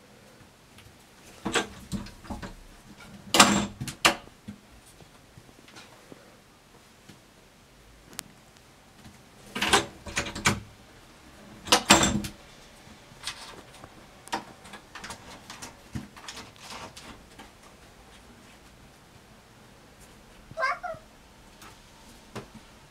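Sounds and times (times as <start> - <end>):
wooden door rattling in frame: 3.3 - 4.3, 9.5 - 10.7, 11.6 - 12.4.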